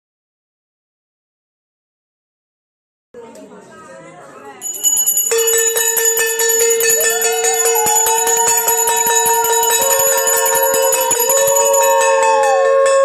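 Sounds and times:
hand bell ringing rapidly: 4.6 - 13.0
wavering held tone: 4.7 - 13.0.

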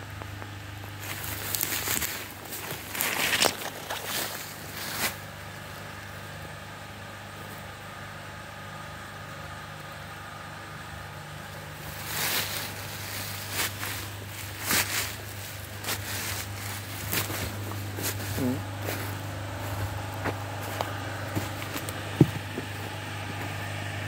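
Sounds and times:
diesel engine idling: 0.0 - 24.0
footsteps through snow and brush: 0.9 - 5.8, 11.5 - 23.8.

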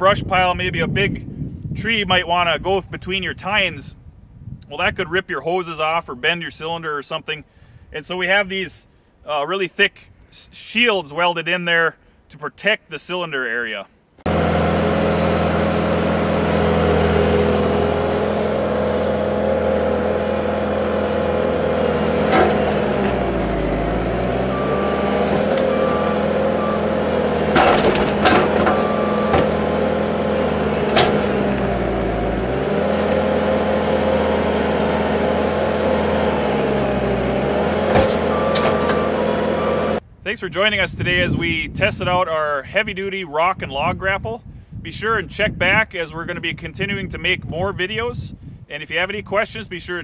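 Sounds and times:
diesel engine revving: 14.2 - 40.0
wood and steel knocks: 22.3 - 23.2, 27.5 - 29.6, 30.9 - 31.3, 37.8 - 39.0
backup alarm beeping: 22.7 - 29.8, 38.0 - 40.0.

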